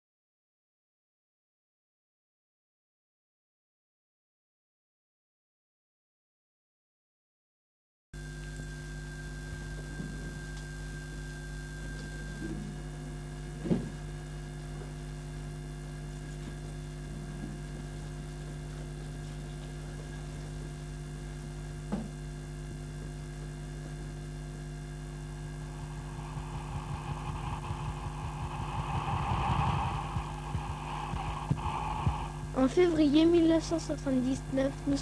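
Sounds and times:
electrical mains hum: 8.2s - 35.0s
rushing noise with low throb: 25.2s - 33.8s.

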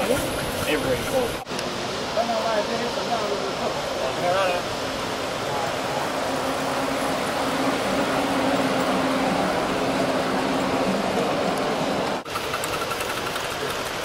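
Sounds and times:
wheels rushing on rail: 3.1s - 14.0s
miniature locomotive humming: 5.6s - 14.0s.

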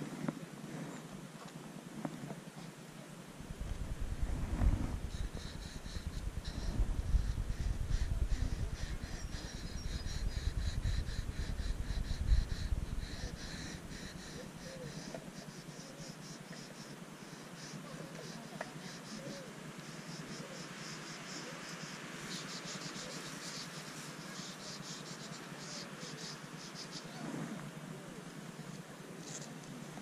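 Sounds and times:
wind rumble on microphone: 3.3s - 14.8s.

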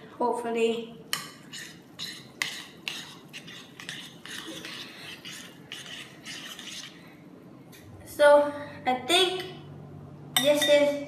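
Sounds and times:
utensils scraping and clinking bowl: 1.1s - 7.0s.

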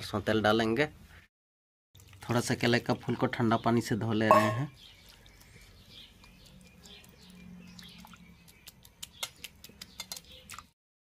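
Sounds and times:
small clicks and splashes: 2.0s - 3.4s, 4.8s - 10.8s
birds chirping faintly: 2.3s - 10.8s.

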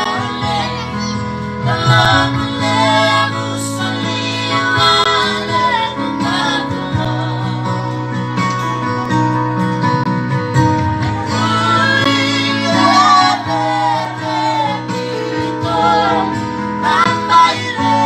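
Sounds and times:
gospel singing: 0.0s - 8.2s, 11.0s - 18.0s
steady bass line: 0.0s - 18.0s.

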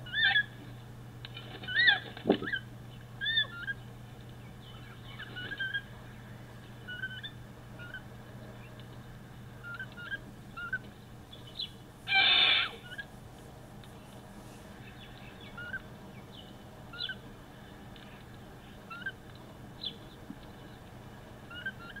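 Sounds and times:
bird harsh screech: 12.1s - 13.0s.

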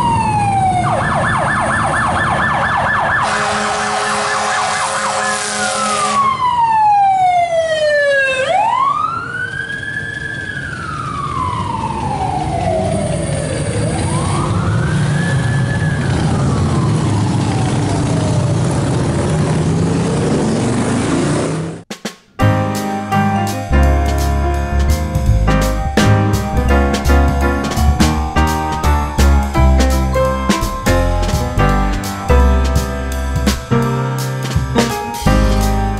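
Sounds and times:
emergency sirens: 0.0s - 20.5s
engine and traffic rumble: 0.0s - 35.9s.

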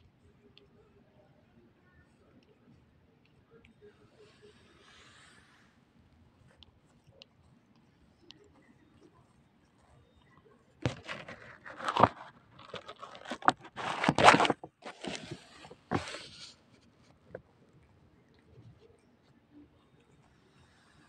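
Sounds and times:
fur rubbing against microphone: 11.0s - 16.9s.

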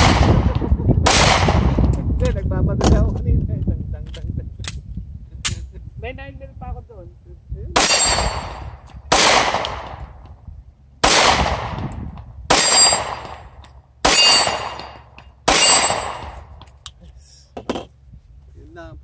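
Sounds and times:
pistol shots: 0.0s - 1.8s, 7.8s - 10.2s, 11.0s - 11.9s, 12.5s - 16.5s.

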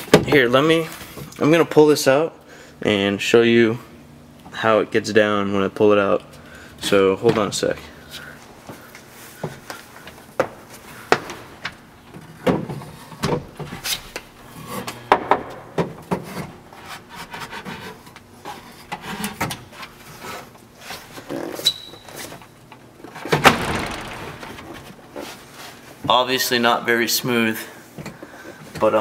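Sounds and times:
wooden knocks and clunks: 23.3s - 25.2s.

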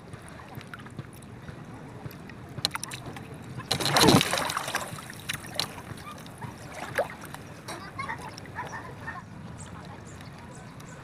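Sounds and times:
water lapping: 0.0s - 11.0s
line splashing into water: 2.6s - 7.4s.

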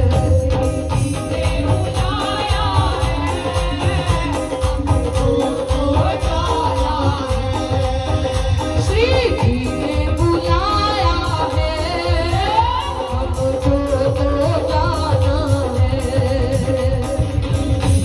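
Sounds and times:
hand drum beat: 0.0s - 18.0s
instrumental accompaniment: 0.0s - 18.0s
woman singing: 0.0s - 18.0s.

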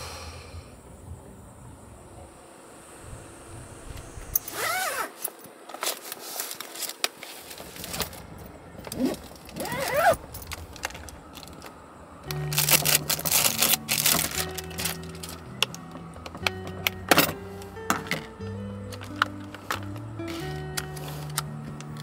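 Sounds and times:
handling noises and knocks: 12.5s - 22.0s.

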